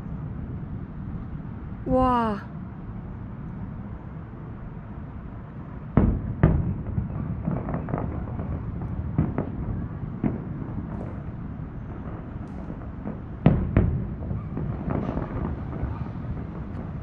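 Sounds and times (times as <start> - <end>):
distant fireworks booming: 5.7 - 17.0.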